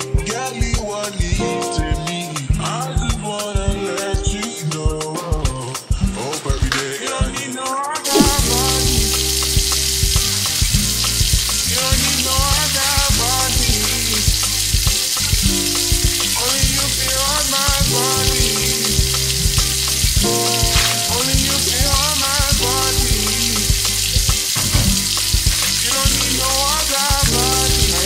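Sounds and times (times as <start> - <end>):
steady hiss: 8.0 - 28.0
song with bass and chords: 8.1 - 28.0.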